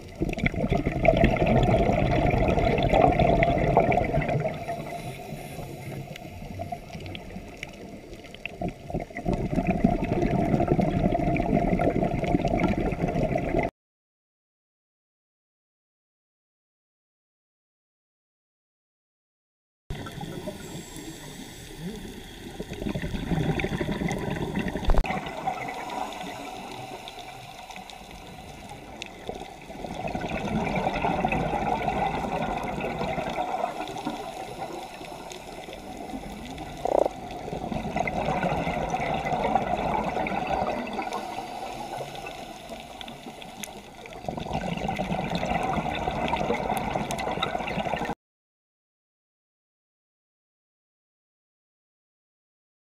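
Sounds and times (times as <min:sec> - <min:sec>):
exhaled bubbles rushing underwater: 0:00.0 - 0:13.7, 0:19.9 - 0:48.2
regulator inhalations: 0:04.6 - 0:06.6, 0:20.1 - 0:23.0, 0:25.7 - 0:29.5, 0:41.0 - 0:44.0.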